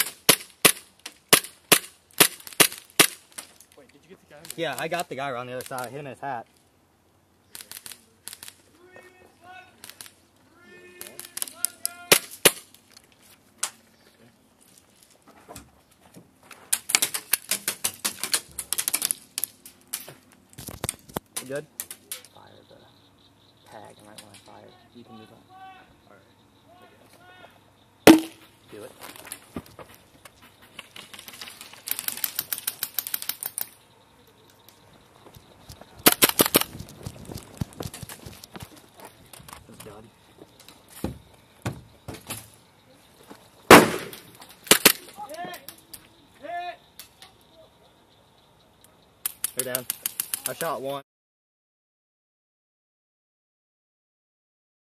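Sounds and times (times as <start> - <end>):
airsoft guns firing: 0.0 - 3.4, 28.1 - 28.4, 43.7 - 45.2
airsoft guns firing full auto: 43.7 - 45.1.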